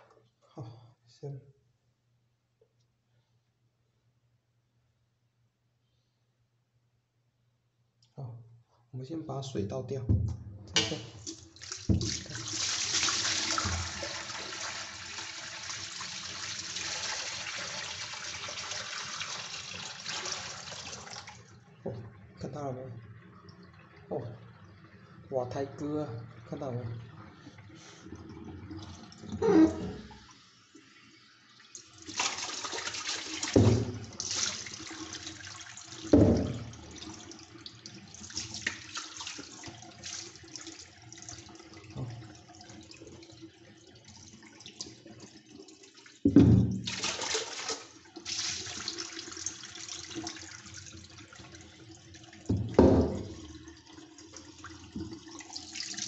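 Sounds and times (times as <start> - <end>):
tap water splashing into sink: 10.1 - 22.2, 31.7 - 42.7, 46.0 - 56.0.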